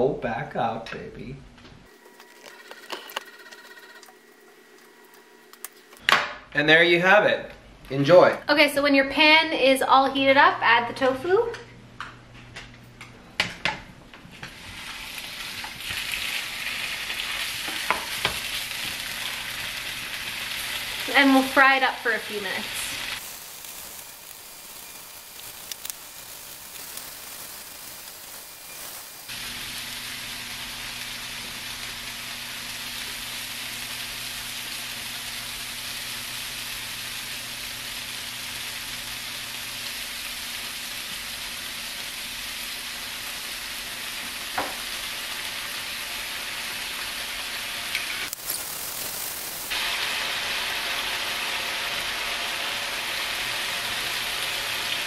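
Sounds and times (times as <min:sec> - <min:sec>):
tofu sizzling in a frying pan: 0:14.5 - 0:55.0.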